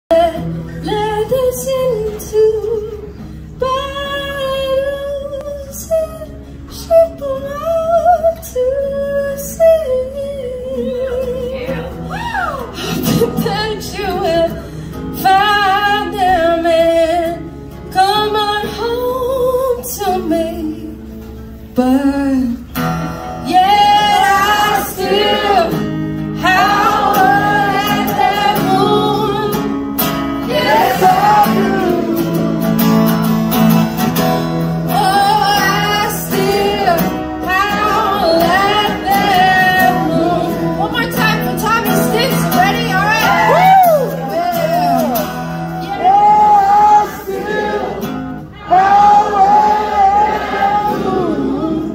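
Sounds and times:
woman singing: 0:00.1 - 0:22.8, 0:23.4 - 0:29.8, 0:30.4 - 0:32.7, 0:34.9 - 0:48.0
acoustic guitar chords: 0:00.1 - 0:51.9
singer breathing: 0:03.1 - 0:03.6, 0:12.7 - 0:13.2, 0:14.5 - 0:15.2.

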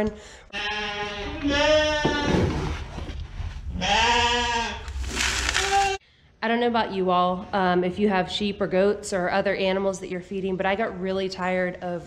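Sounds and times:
sheep bleating: 0:00.5 - 0:02.3, 0:03.8 - 0:04.9.

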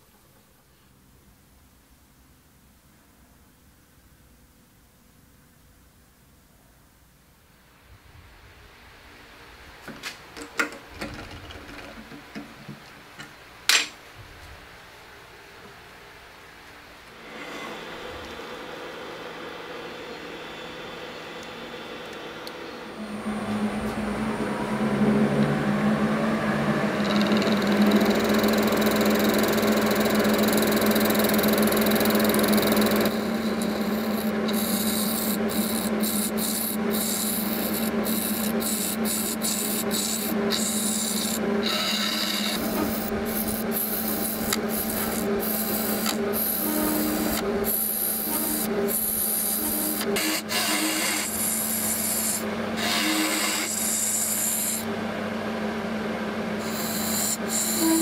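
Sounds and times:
wood lathe humming: 0:17.2 - 0:58.0
gouge scraping spinning blank: 0:26.8 - 0:54.9, 0:56.6 - 0:58.0.

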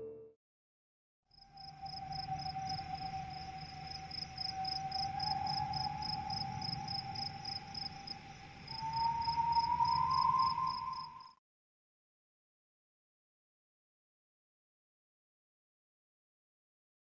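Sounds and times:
pulsing cricket-like chirp: 0:01.3 - 0:11.4.

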